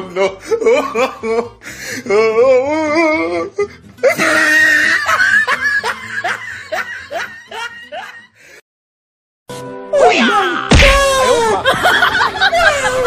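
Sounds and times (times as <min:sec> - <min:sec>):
music: 0:00.0 - 0:08.6, 0:09.5 - 0:13.0
loud laughter: 0:04.0 - 0:08.4, 0:11.0 - 0:13.0.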